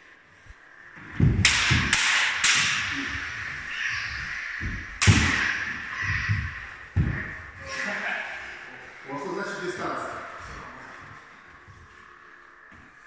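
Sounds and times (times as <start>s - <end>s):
footwork thuds on floor: 1.0s - 2.0s, 4.1s - 7.6s
lightsaber blades clashing: 1.0s - 8.6s.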